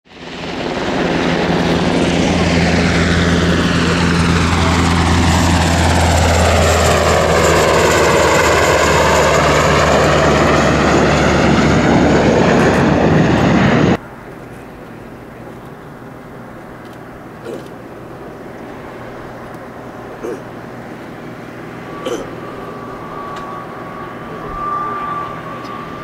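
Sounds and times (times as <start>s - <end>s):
jet engines roaring: 0.1s - 26.0s
steady low hum: 9.8s - 26.0s.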